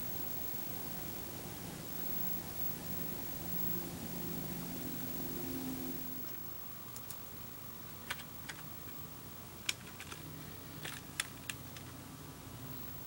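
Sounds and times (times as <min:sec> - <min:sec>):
faint steady hiss: 0:00.0 - 0:13.0
computer keyboard keys tapping: 0:08.1 - 0:09.0, 0:09.6 - 0:12.0.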